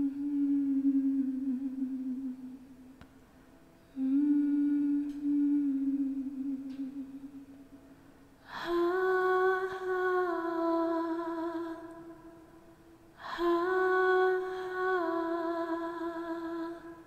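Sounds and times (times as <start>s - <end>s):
woman humming: 0.0s - 2.6s, 3.9s - 7.5s.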